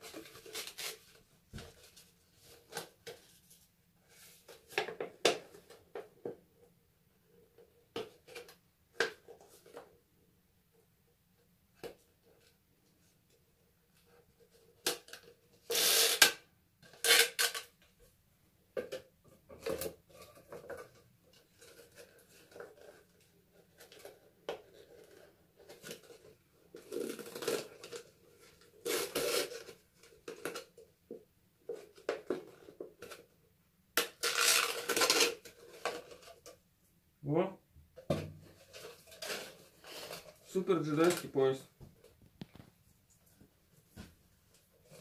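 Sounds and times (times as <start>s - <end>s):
plastic pieces crinkling: 34.0s - 36.2s.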